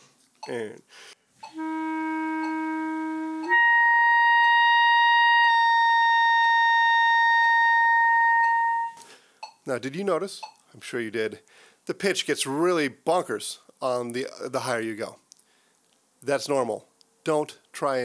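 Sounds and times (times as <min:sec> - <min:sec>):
clarinet holding notes: 0:01.4 - 0:09.0.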